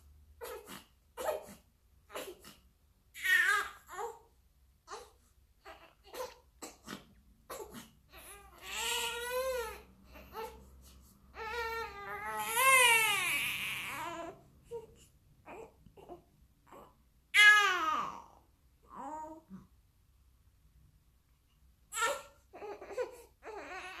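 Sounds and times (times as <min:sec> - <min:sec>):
baby crying: 0:03.2 - 0:04.3, 0:07.5 - 0:10.6, 0:11.3 - 0:14.9, 0:21.9 - 0:24.0.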